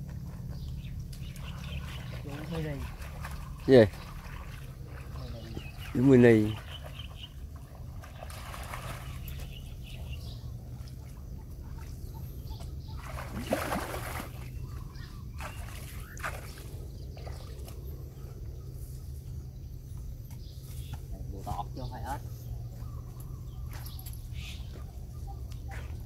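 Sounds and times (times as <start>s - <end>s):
small water splashes: 0.0s - 18.2s
ditch water sloshing and trickling: 0.0s - 26.0s.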